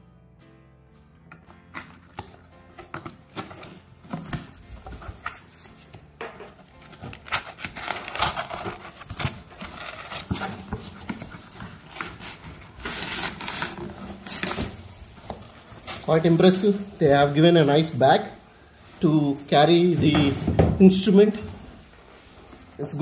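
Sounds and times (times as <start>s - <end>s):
cardboard scraping and rustling: 1.9s - 18.4s.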